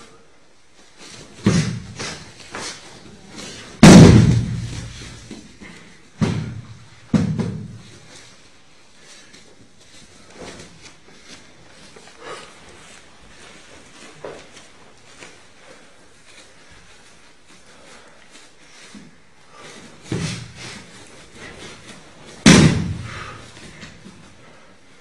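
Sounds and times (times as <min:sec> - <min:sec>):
bodies thudding on mats: 0:01.1 - 0:02.8, 0:03.4 - 0:08.2, 0:19.6 - 0:24.4.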